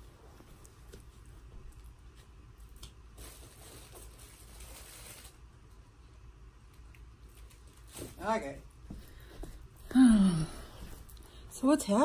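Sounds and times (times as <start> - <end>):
rustling handling noise: 0.0 - 5.5.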